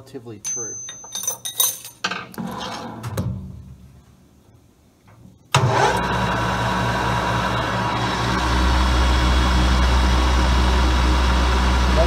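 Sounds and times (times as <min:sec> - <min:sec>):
light metal clinks: 0:00.5 - 0:02.0
lathe motor humming: 0:05.7 - 0:12.0.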